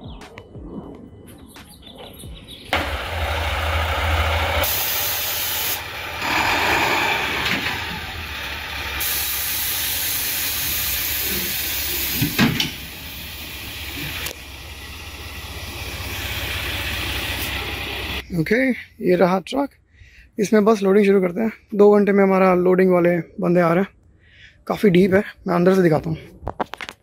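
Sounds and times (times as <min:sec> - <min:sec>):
diesel engine running: 0:02.7 - 0:18.3
loud air hissing: 0:02.8 - 0:18.2.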